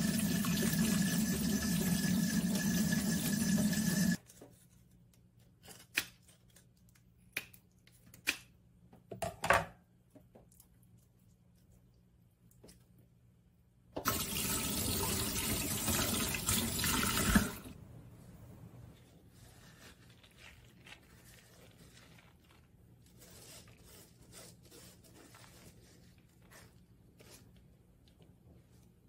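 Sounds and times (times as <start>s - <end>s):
faint handling sounds: 4.2s - 7.2s, 18.8s - 29.0s.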